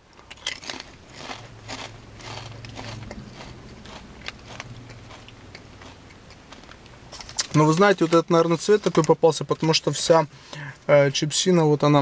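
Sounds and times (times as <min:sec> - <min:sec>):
low steady hum: 0:00.0 - 0:12.0
potato chip crunching: 0:00.1 - 0:09.7.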